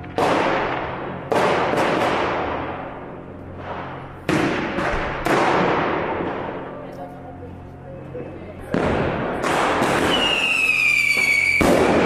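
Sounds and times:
firecracker cracks: 0.0 - 2.8, 8.8 - 12.0
loud firework bangs echoing: 0.0 - 6.6, 8.6 - 12.0.

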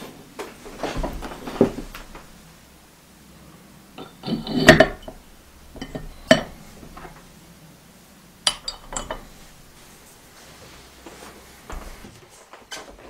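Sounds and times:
porcelain pot clinking on metal: 4.0 - 6.9, 8.4 - 9.7.

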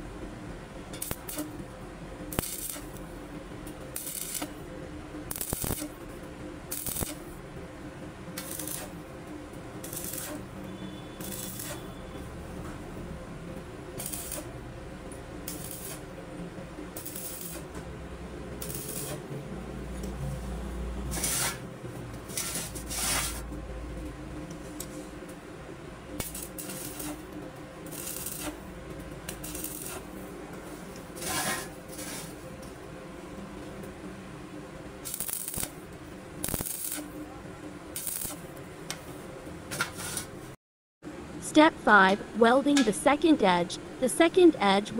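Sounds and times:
steady low hum: 0.0 - 39.7, 41.1 - 44.9
arc welder crackling: 0.9 - 4.7, 5.3 - 7.4, 8.3 - 12.3, 13.8 - 16.2, 16.8 - 17.8, 18.5 - 19.4, 21.0 - 23.5, 26.1 - 30.3, 30.9 - 32.7, 35.0 - 39.1.

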